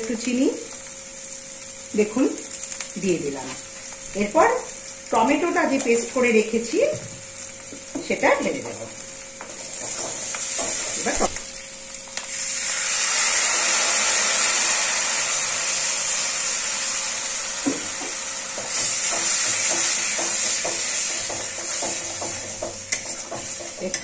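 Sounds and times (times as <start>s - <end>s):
oil sizzling and hissing: 0.0s - 24.0s
spatula scraping pan: 9.4s - 11.4s, 18.6s - 24.0s.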